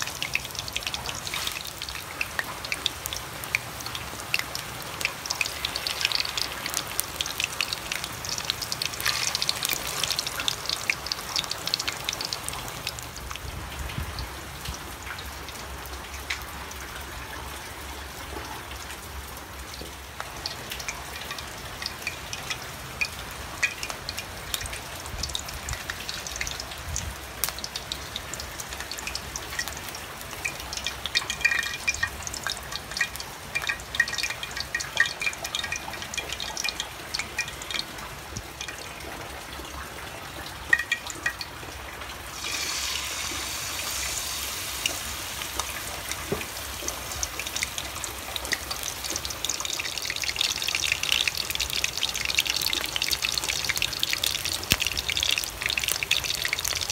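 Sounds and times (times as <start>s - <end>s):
oil popping: 0.0s - 13.4s, 40.5s - 56.9s
batter deep-frying in hot oil: 0.0s - 56.9s.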